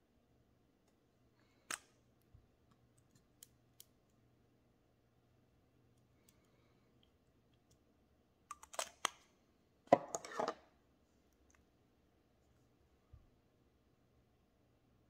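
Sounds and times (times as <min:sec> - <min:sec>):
items clattering on tabletop: 0:09.9 - 0:10.6.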